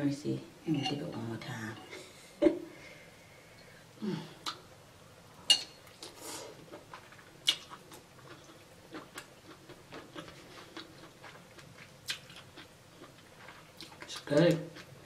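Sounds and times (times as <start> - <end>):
chewing: 5.9 - 15.0.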